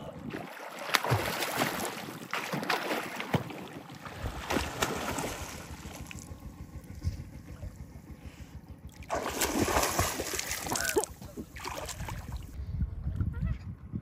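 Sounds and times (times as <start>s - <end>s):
water splashing and rushing: 0.0s - 6.4s, 8.9s - 12.6s
wind buffeting microphone: 3.8s - 14.0s.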